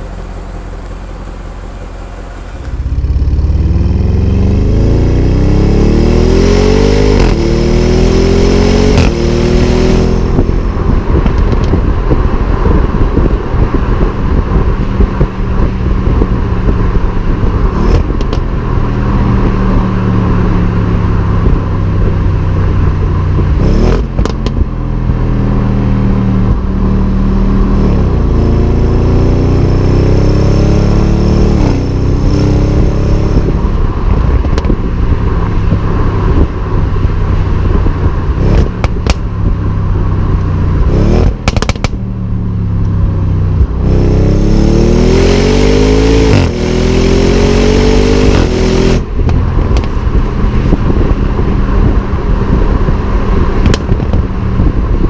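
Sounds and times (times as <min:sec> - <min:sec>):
exhaust cracks: 0:00.0 - 0:04.7, 0:10.1 - 0:26.9, 0:31.5 - 0:44.5, 0:48.2 - 0:55.0
car exhaust accelerating: 0:00.0 - 0:55.0.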